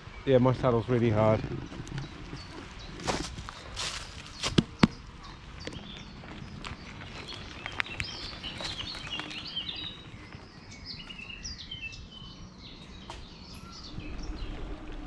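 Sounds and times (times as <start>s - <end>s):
birds chirping and trilling: 0.0s - 15.0s
small clicks and rustles: 5.6s - 10.0s.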